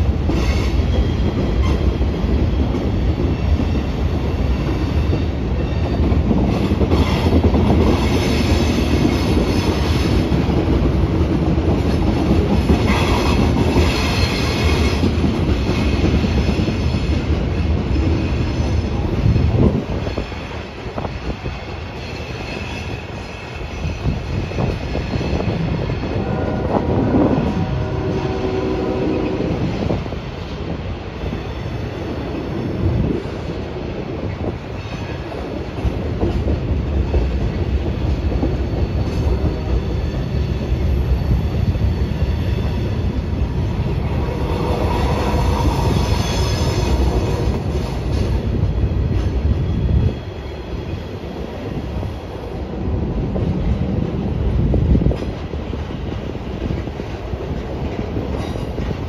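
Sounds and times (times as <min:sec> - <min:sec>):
freight wheels rumbling on rail: 0:00.0 - 0:59.0
high wheel squeal: 0:44.3 - 0:47.4.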